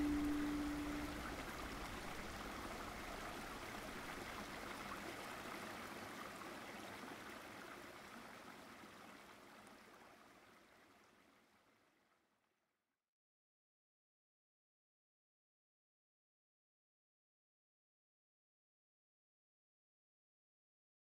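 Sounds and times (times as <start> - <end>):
held music note: 0.0 - 1.4.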